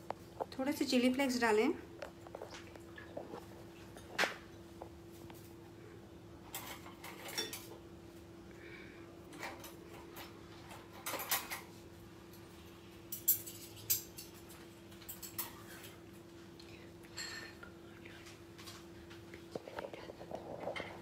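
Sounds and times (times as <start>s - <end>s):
faint steady hum: 0.0s - 21.0s
dishes and utensils clinking: 6.5s - 7.8s, 9.3s - 11.7s, 13.1s - 16.0s, 17.1s - 17.7s.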